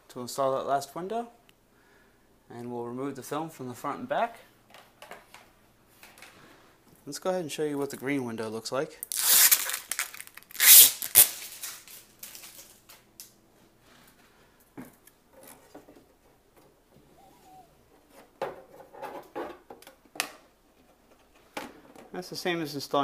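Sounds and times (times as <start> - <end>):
protective film peeling rip: 9.0 - 12.6.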